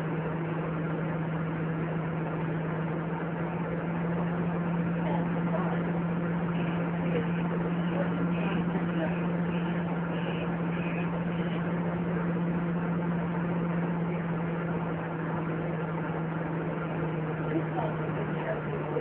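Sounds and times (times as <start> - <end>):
bus diesel engine humming: 0.0 - 19.0.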